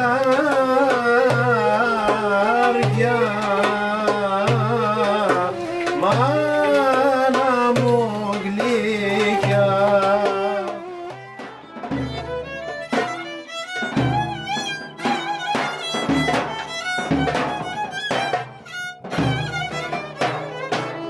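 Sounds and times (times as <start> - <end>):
wavering folk melody: 0.0 - 21.0.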